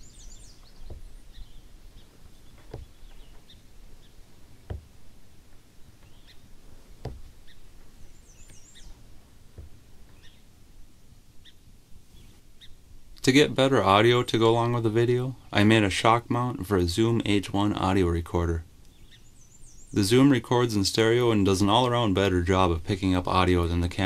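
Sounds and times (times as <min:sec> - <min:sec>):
small birds chirping: 0:00.0 - 0:16.5, 0:17.1 - 0:22.1
soft knocks: 0:00.6 - 0:10.4.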